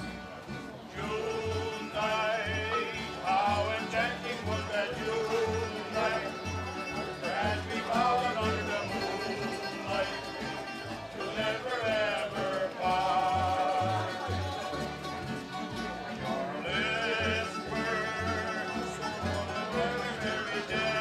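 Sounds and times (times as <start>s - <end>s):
double bass notes: 0.0s - 21.0s
plucked string melody: 0.0s - 21.0s.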